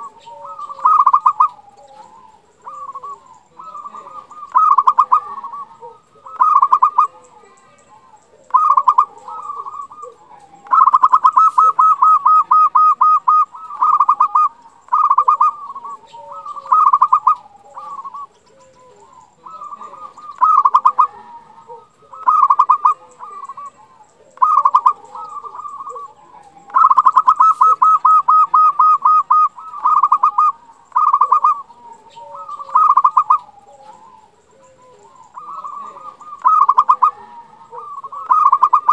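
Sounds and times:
fast-pulsed bird trill: 0.0s - 1.5s, 2.6s - 7.1s, 8.5s - 10.0s, 10.6s - 18.3s, 19.2s - 21.1s, 22.1s - 23.8s, 24.4s - 26.1s, 26.7s - 31.7s, 32.4s - 33.5s, 35.2s - 37.2s, 37.8s - 38.9s
dove cooing: 0.0s - 38.9s.

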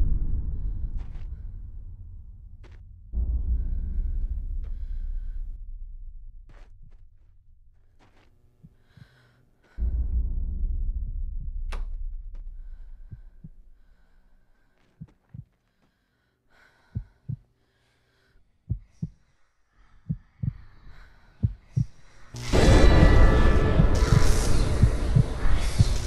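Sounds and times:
deep low boom: 0.0s - 7.1s, 9.8s - 13.8s, 22.4s - 26.0s
heartbeat thumps: 9.8s - 13.8s, 16.9s - 17.4s, 18.7s - 19.2s, 20.0s - 26.0s.

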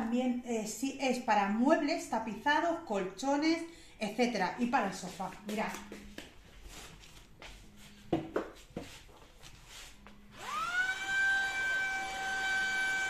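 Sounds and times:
vacuum motor whine: 10.3s - 13.0s.

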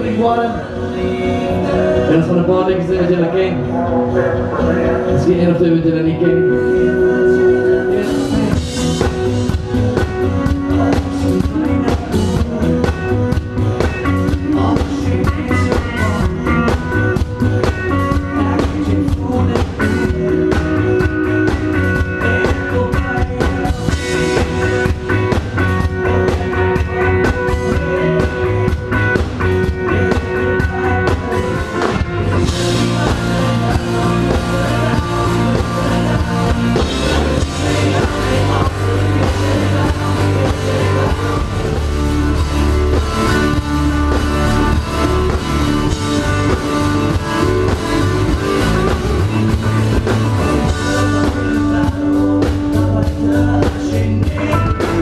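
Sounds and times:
person singing: 0.0s - 55.0s
rock band playing: 0.0s - 55.0s.

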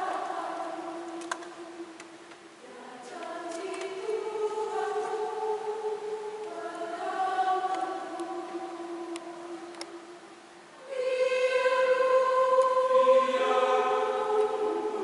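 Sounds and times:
mixed choir singing a hymn: 0.0s - 10.2s, 10.8s - 15.0s.

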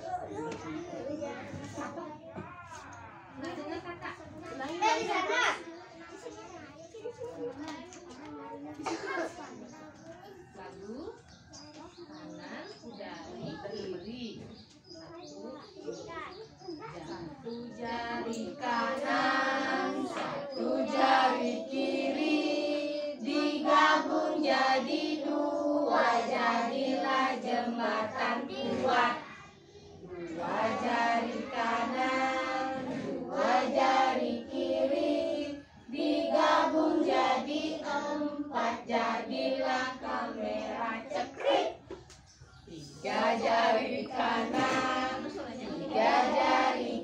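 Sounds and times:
young children singing: 17.5s - 29.6s, 30.2s - 42.0s, 43.0s - 47.0s.

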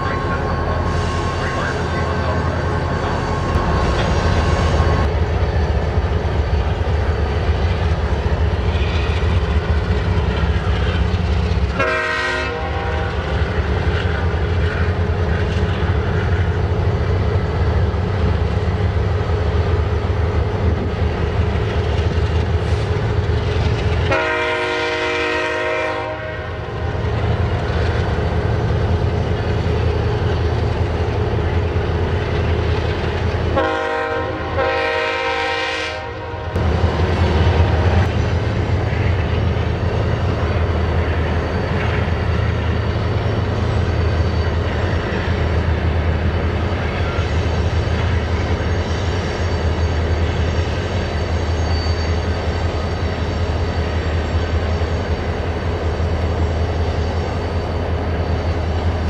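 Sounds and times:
diesel locomotive rumble: 0.0s - 59.0s
locomotive horn blasts: 11.8s - 13.3s, 24.1s - 26.7s, 33.6s - 36.6s.

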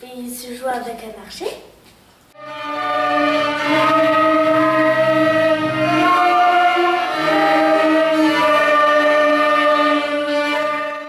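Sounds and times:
string orchestra playing held notes: 2.4s - 11.0s.

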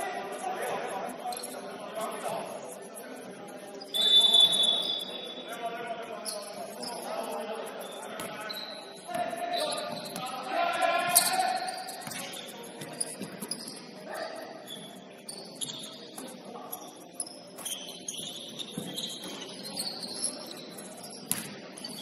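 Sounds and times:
sneakers squeaking on court: 7.8s - 10.3s, 11.1s - 22.0s.

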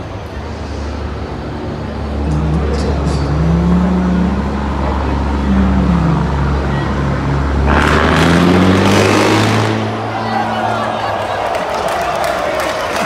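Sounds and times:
loud rushing noise: 0.0s - 12.0s
truck diesel engine revving: 2.0s - 10.4s.

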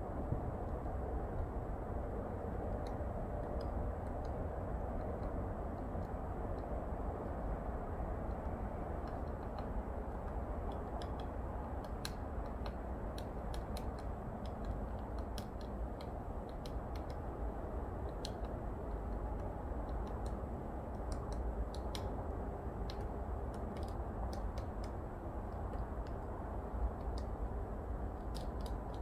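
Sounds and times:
steady low rumble: 0.0s - 29.0s
woodpecker tapping on tree trunk: 2.5s - 29.0s.

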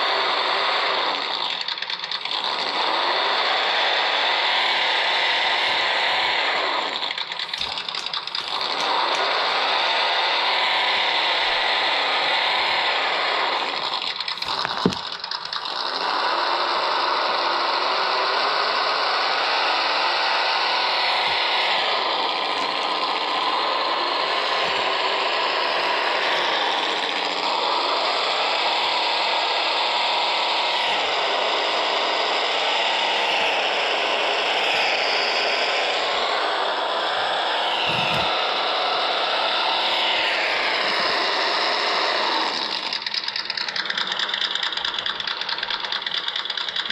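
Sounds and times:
rc car motor whirring: 0.0s - 46.9s
sharp click: 13.7s - 15.9s.

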